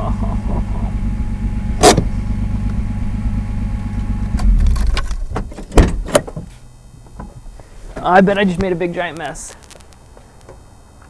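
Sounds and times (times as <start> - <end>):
deep engine rumble: 0.0 - 7.6
car engine idling: 0.0 - 8.0.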